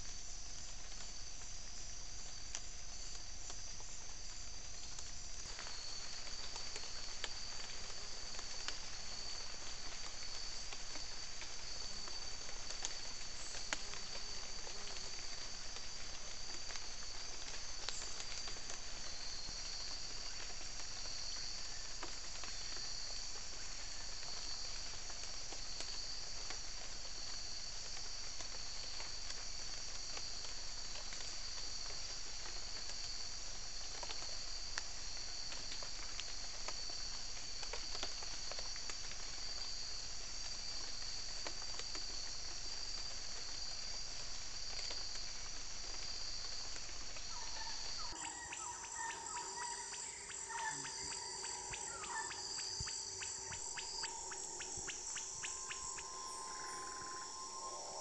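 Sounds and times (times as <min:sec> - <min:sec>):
insects buzzing: 0:02.0 - 0:24.7, 0:46.5 - 0:58.0
faint ticks: 0:48.2 - 0:58.0
held low tone: 0:48.2 - 0:58.0.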